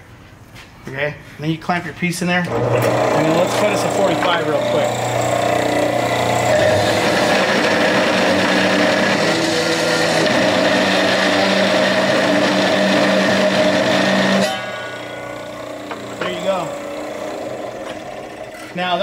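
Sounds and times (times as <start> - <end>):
saw cutting through steel: 2.5 - 19.0.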